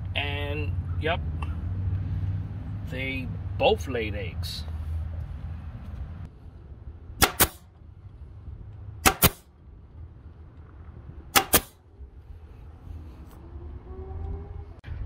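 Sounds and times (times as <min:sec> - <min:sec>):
staple gun firing: 0:07.2 - 0:07.6, 0:09.0 - 0:09.4, 0:11.4 - 0:11.8.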